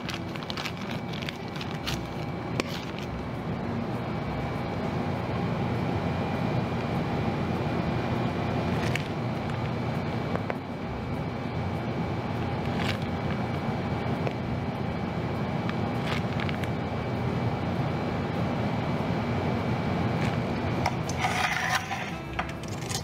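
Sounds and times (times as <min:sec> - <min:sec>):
plastic bag crinkling: 0:00.0 - 0:03.2, 0:12.6 - 0:13.4, 0:16.0 - 0:16.7
machine noise: 0:00.0 - 0:23.0.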